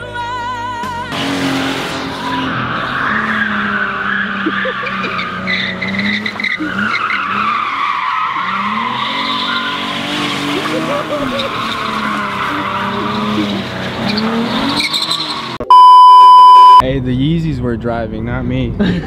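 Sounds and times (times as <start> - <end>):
music: 0.0 - 1.2
loud car engine revving: 1.1 - 15.6
tyres squealing: 2.0 - 15.6.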